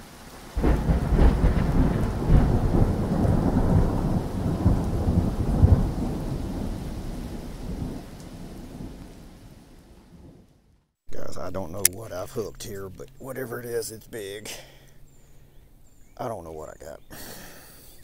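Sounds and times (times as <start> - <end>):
rain hissing: 0.0 - 9.9
thunder clap rumbling: 0.6 - 9.5.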